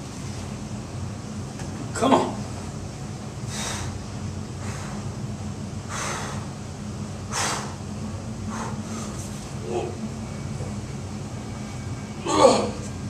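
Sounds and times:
steady low hum: 0.0s - 13.0s
man breathing hard and gasping: 3.4s - 4.0s, 4.6s - 5.1s, 5.9s - 6.6s, 7.3s - 7.8s, 8.4s - 9.3s.

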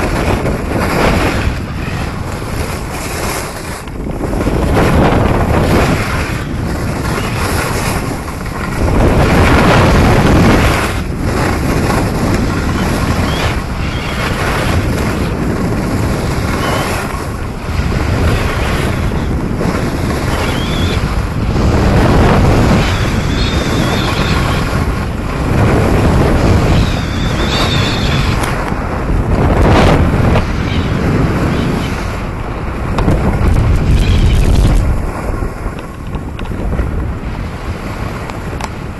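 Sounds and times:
skis scraping on snow: 0.0s - 26.7s
wind rushing over microphone: 0.0s - 38.9s.

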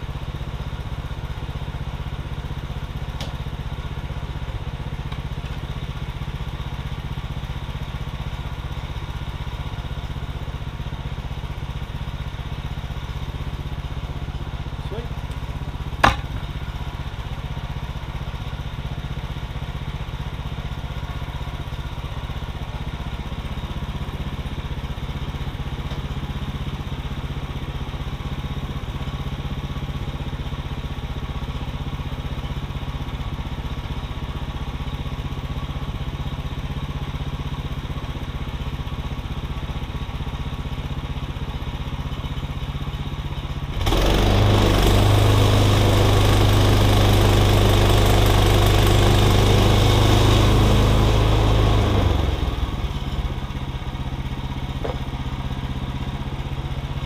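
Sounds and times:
gas engine idling and revving: 0.0s - 57.0s
sharp knock: 16.0s - 16.4s.

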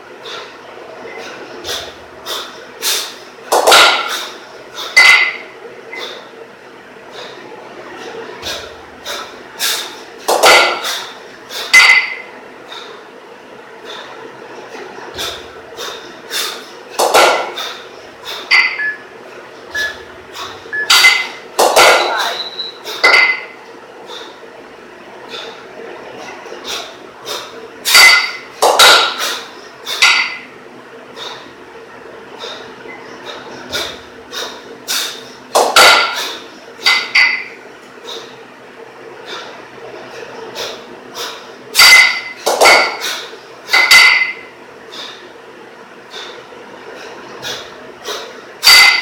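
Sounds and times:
kettlebells clanking together: 3.5s - 4.2s, 5.0s - 5.4s, 10.3s - 11.0s, 19.7s - 23.5s, 27.9s - 29.3s, 35.6s - 37.5s, 41.8s - 44.4s, 47.4s - 49.0s.

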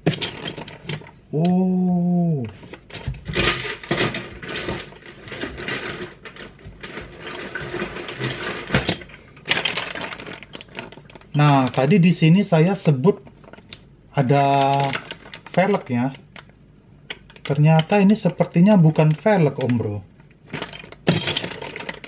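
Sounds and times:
man humming: 1.3s - 2.6s
plastic bags crinkling: 3.3s - 12.4s, 14.2s - 16.6s.

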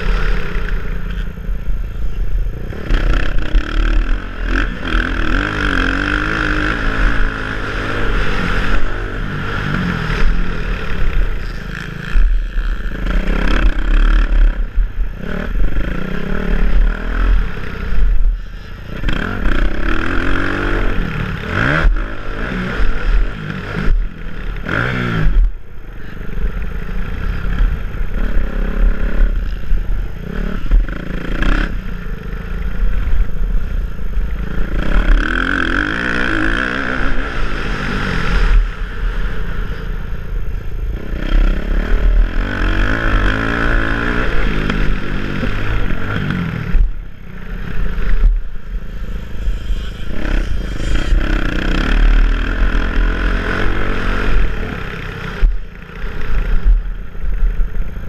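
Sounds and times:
motocross bike engine revving: 0.0s - 58.0s.

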